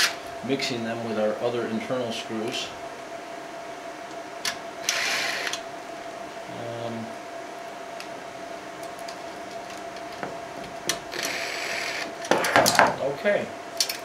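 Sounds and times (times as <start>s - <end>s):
drill motor low hum: 4.5s - 7.1s, 8.4s - 12.3s
drill driving screw into metal: 4.8s - 5.6s, 11.1s - 12.1s.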